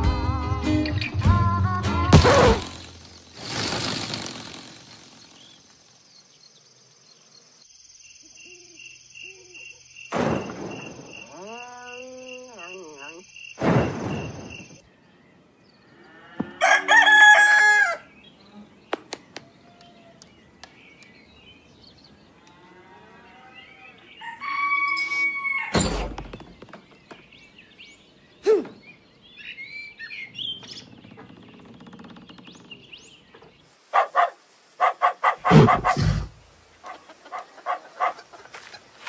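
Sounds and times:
loud thump: 2.1 - 2.9, 13.6 - 14.6, 25.8 - 26.8
rooster crowing: 16.4 - 18.1, 24.1 - 25.8.

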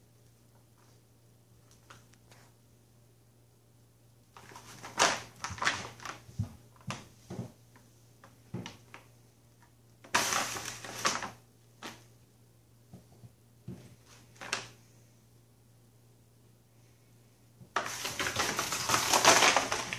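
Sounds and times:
plastic bag crinkling and rustling: 4.3 - 7.6, 10.0 - 12.0, 14.0 - 14.8, 17.7 - 19.9.

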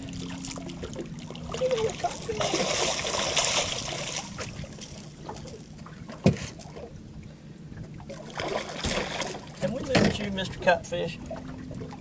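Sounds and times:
fish splashing in water: 0.0 - 5.4, 8.1 - 9.6.

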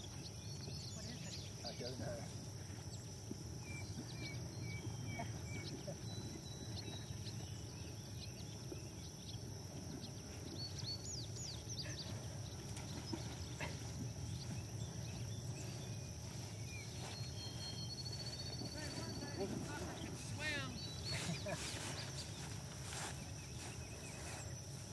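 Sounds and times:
high insect drone: 0.0 - 24.9
birds chirping and whistling: 10.4 - 24.7.

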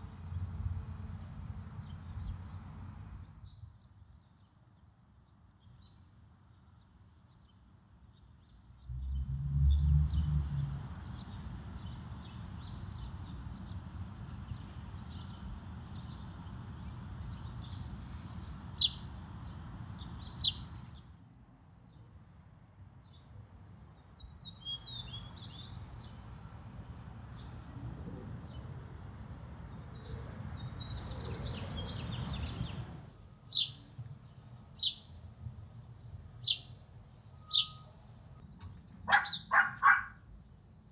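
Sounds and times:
small birds chirping: 0.1 - 27.7, 28.4 - 38.0, 39.1 - 40.2
low rumbling noise: 8.9 - 11.3.

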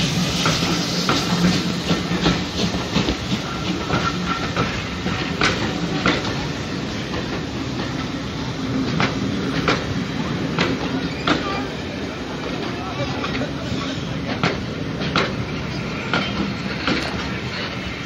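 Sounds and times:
train wheels rumbling on rails: 0.0 - 18.0
wheels clicking over rail joints: 1.1 - 6.5, 14.2 - 17.9.

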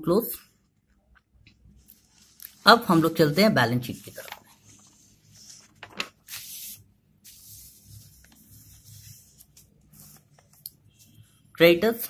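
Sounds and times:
paper handling noises: 3.8 - 11.2
paper sliding: 4.1 - 10.6.

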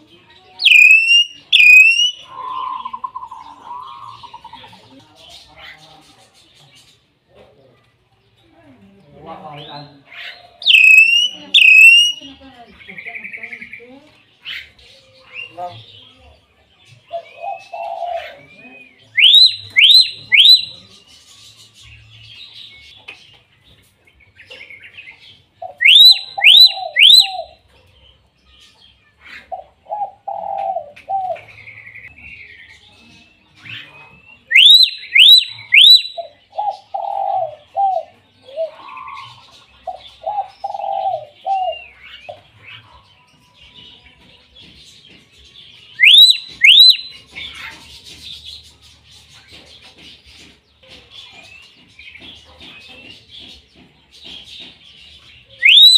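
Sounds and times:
bird whistling calls: 0.6 - 4.6, 10.6 - 12.3, 19.0 - 20.8, 25.7 - 27.6, 33.7 - 37.9, 45.9 - 47.5, 55.5 - 55.9
softer lower bird calls: 0.6 - 4.8, 10.4 - 12.3, 46.0 - 47.2, 55.6 - 55.9.

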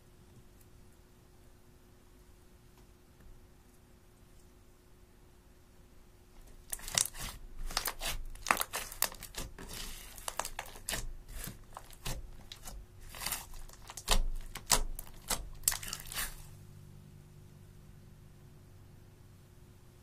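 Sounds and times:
slime clicking and popping: 6.7 - 16.3.

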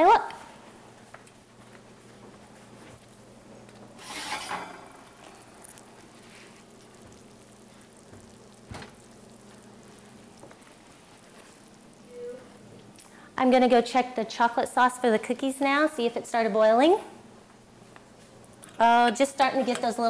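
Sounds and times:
faint sizzling from pan: 3.9 - 14.0
oven door shutting: 4.0 - 5.1.

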